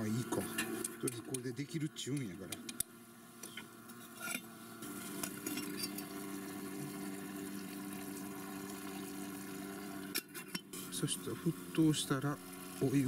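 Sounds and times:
pot hissing on camp stove: 0.0 - 13.0.

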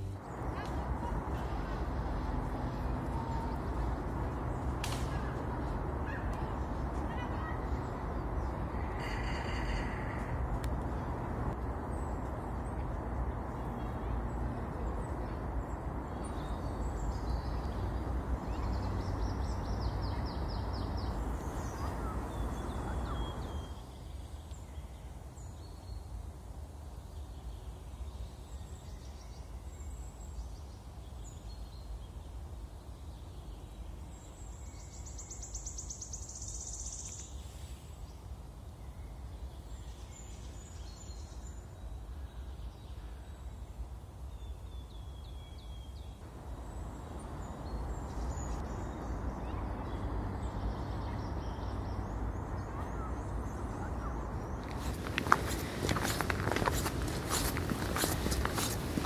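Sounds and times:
ambient background noise: 0.0 - 59.0.

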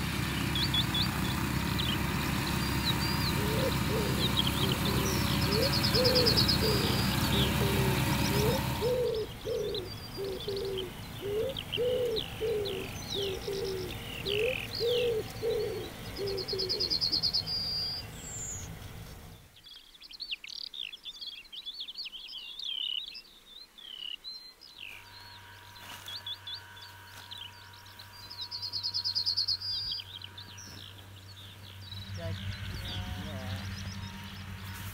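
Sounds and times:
songbirds chirping and trilling: 0.0 - 34.9
pigeon cooing: 2.7 - 17.5.

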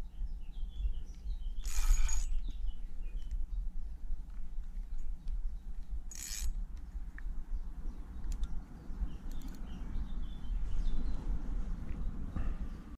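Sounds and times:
steady low rumble: 0.0 - 12.9
fishing reel gears clicking: 1.6 - 2.3, 6.1 - 6.6.

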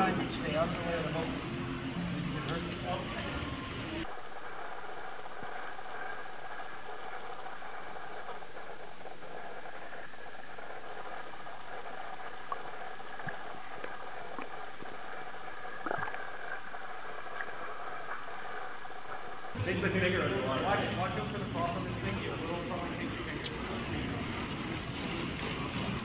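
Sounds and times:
faint hum: 0.0 - 26.0
indoor pool rushing ambience: 0.0 - 26.0.

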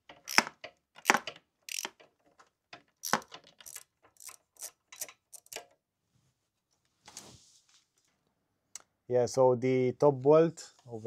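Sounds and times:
ratchet wrench clicking: 0.3 - 2.0, 3.0 - 5.6.

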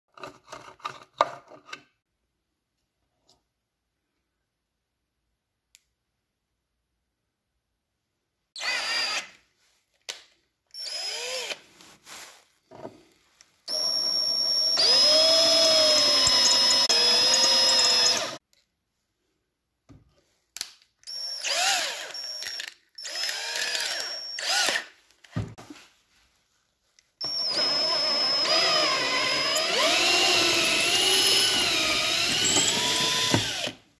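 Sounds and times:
cordless drill motor: 8.6 - 9.4, 10.8 - 11.6, 13.7 - 18.4, 21.1 - 24.9, 27.2 - 33.8.

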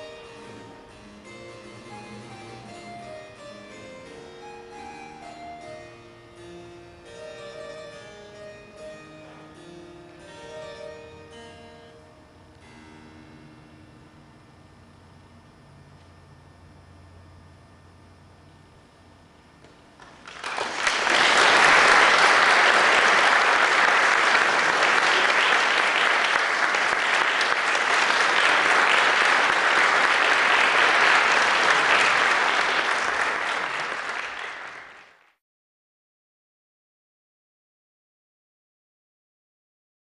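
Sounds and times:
audience applauding: 20.0 - 35.4.

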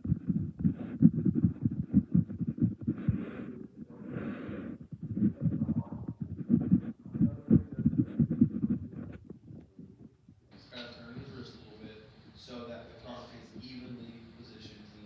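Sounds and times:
dull low thumps: 0.0 - 10.4.

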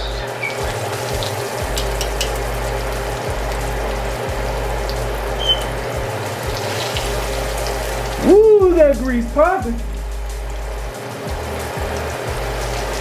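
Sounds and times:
food sizzling in oil: 0.0 - 13.0
grease popping and crackling: 0.0 - 13.0.

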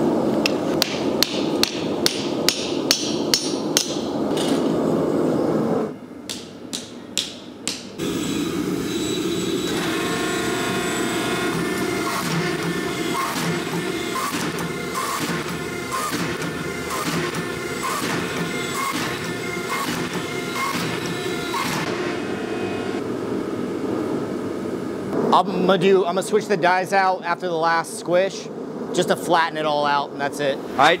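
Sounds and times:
steady background roar: 0.0 - 31.0
steady hum with held tones: 0.0 - 31.0
hammer striking steel on anvil: 0.4 - 4.2, 6.3 - 8.0.

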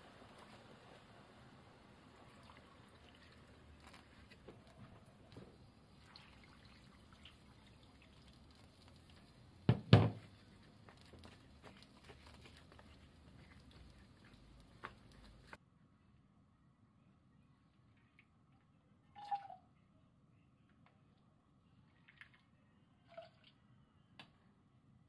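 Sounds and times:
water pouring into pot: 0.0 - 9.8.

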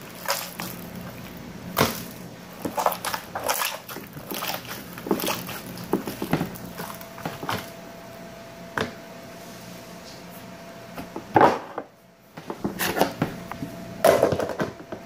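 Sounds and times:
slime squelching by hand: 0.0 - 7.8.

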